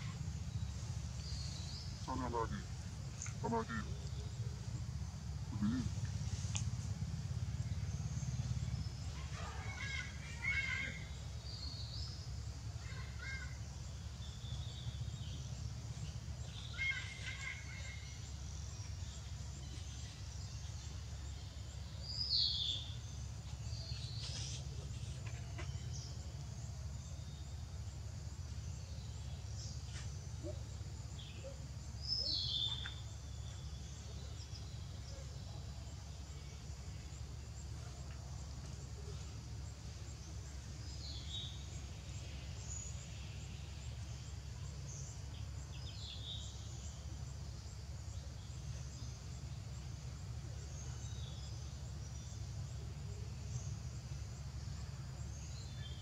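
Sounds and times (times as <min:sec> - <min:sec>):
birds chirping: 0:00.0 - 0:27.6.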